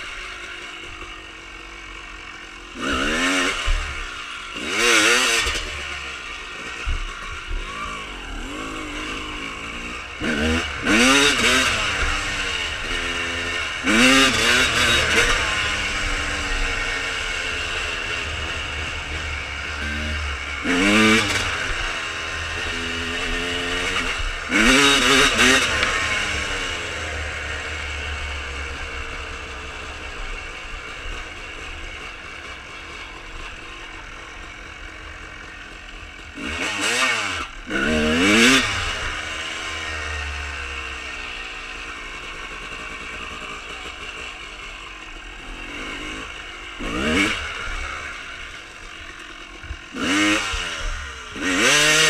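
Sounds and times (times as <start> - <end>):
two-stroke motorcycle engine revving: 0.0 - 52.0.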